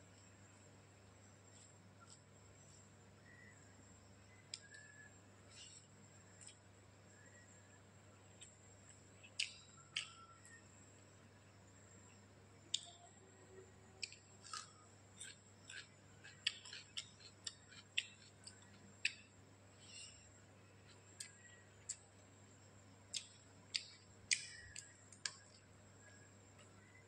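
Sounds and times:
person chewing food: 8.3 - 10.4, 14.0 - 19.3, 20.8 - 22.2, 23.1 - 25.6.

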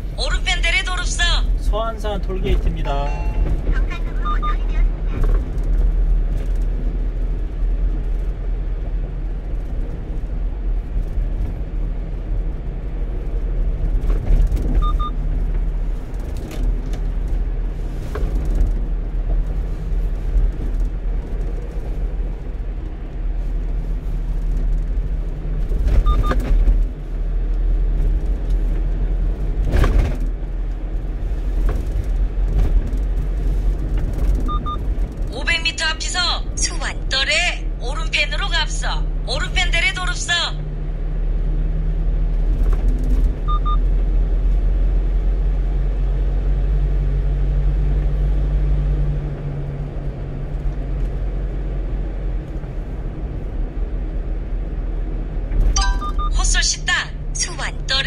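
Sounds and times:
truck engine and road rumble: 0.0 - 58.0
faint double beep: 3.0 - 4.7, 55.8 - 56.6.

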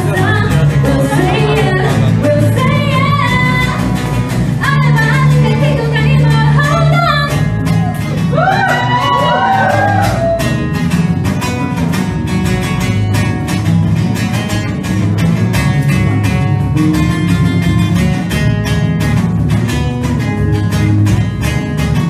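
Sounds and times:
woman singing: 0.0 - 7.5
electric guitar: 0.0 - 22.0
strummed acoustic guitar: 0.0 - 22.0.

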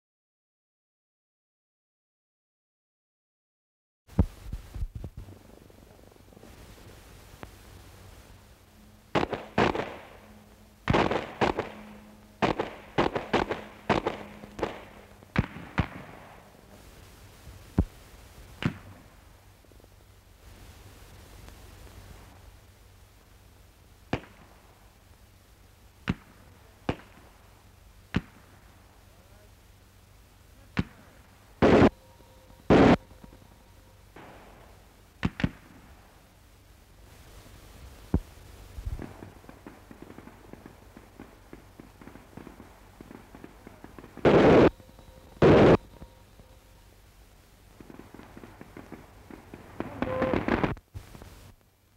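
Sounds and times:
machine-gun fire: 9.1 - 16.6, 31.6 - 32.0, 32.7 - 33.4, 39.0 - 46.1.

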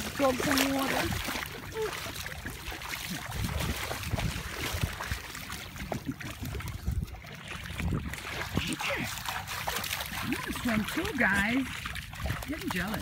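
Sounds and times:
seawater sloshing and splashing: 0.0 - 13.0
wind rumbling on microphone: 2.4 - 9.5, 10.1 - 13.0.

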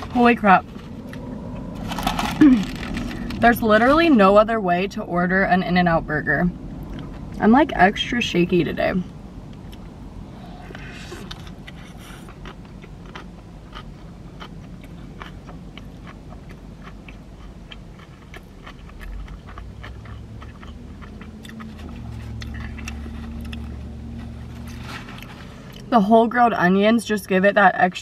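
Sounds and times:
low steady hum: 0.0 - 28.0
chewing with wet mouth clicks: 10.7 - 23.8.

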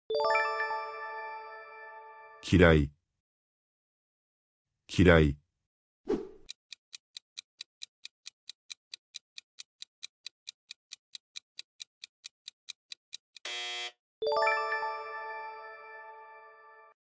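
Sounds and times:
clock ticking countdown: 6.4 - 13.5.

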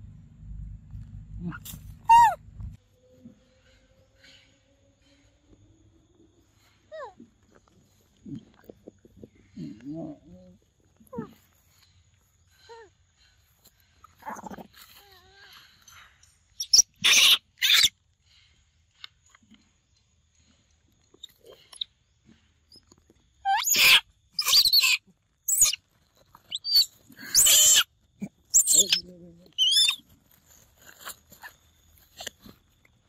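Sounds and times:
monkeys screeching: 2.0 - 2.4, 16.6 - 17.9, 23.5 - 25.8, 26.5 - 27.9, 28.5 - 30.0.

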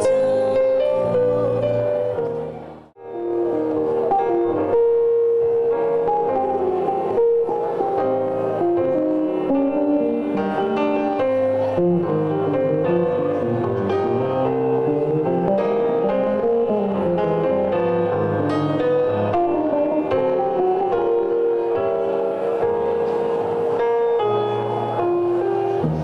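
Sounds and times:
electric bass solo: 8.6 - 21.8.

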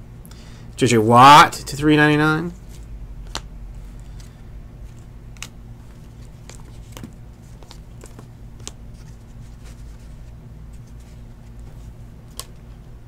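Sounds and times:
cards clicking and tapping: 2.6 - 9.8, 12.3 - 12.7.

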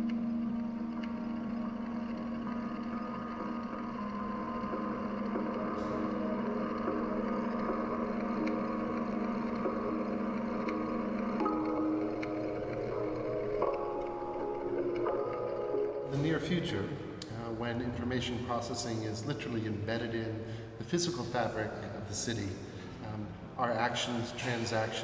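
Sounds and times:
low drone of held tones: 0.0 - 18.8.

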